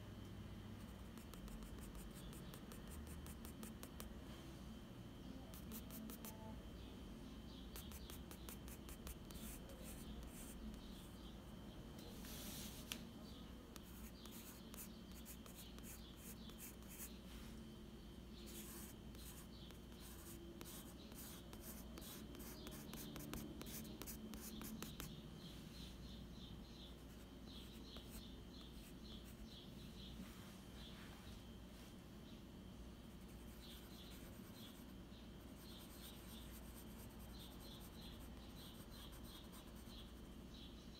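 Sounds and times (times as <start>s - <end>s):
pencil scratching on paper: 1.0s - 4.1s, 5.5s - 6.4s, 7.7s - 11.2s, 13.7s - 17.1s, 18.4s - 25.1s, 33.2s - 34.9s, 35.5s - 40.3s.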